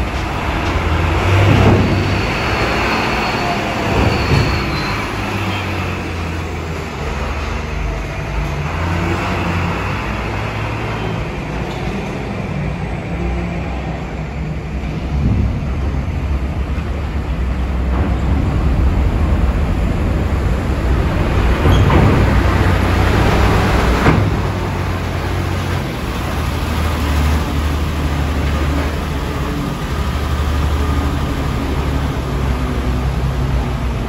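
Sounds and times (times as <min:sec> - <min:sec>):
truck diesel engine rumbling: 0:00.0 - 0:34.0.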